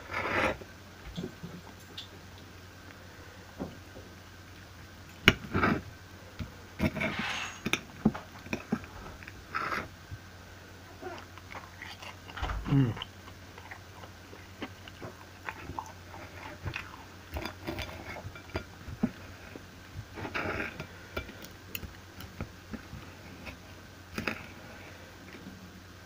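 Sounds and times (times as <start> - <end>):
knife and fork scraping a plate: 6.8 - 7.8
chewing: 11.0 - 19.6.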